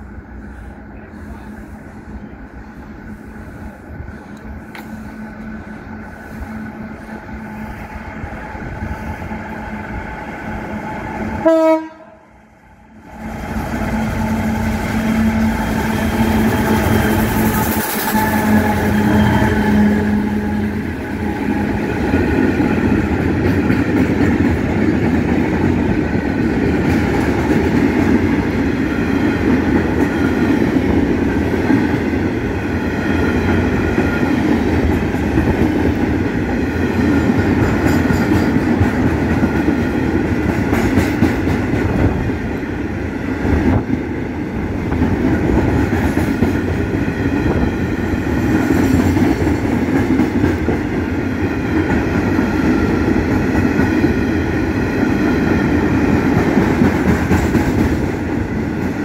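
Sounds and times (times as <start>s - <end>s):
train rumbling past: 0.0s - 59.0s
train horn blast: 11.4s - 12.3s, 14.1s - 20.8s.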